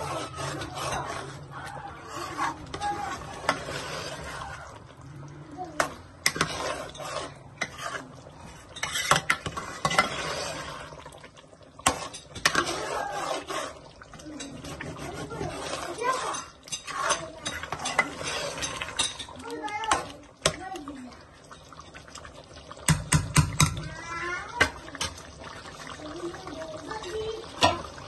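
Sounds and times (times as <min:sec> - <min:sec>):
spoon scraping in pan: 0:00.0 - 0:04.8, 0:05.8 - 0:11.2, 0:11.8 - 0:20.6
chicken frying: 0:00.0 - 0:28.0.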